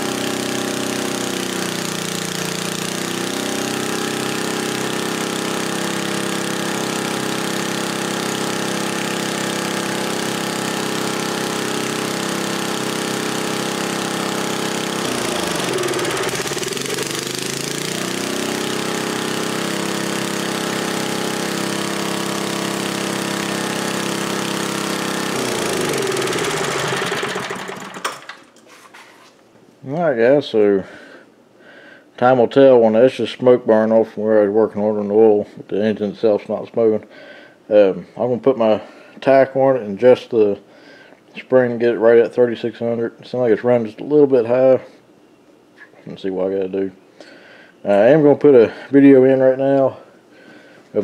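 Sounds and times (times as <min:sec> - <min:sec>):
small engine running a water pump: 0:00.0 - 0:28.5.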